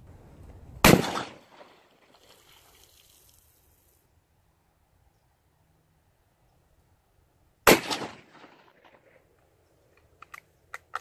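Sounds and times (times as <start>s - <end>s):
rifle shot echoing: 0.8s - 1.9s, 7.6s - 9.1s.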